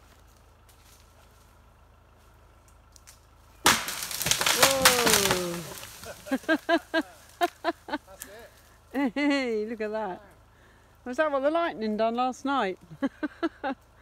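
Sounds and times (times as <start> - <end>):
wood cracking and splintering: 2.7 - 7.6.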